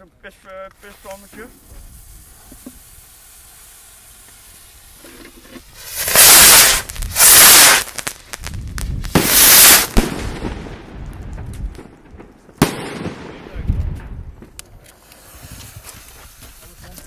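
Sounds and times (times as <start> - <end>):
rockets whooshing blasts: 5.6 - 17.0
sharp cracks and pops: 11.0 - 12.8.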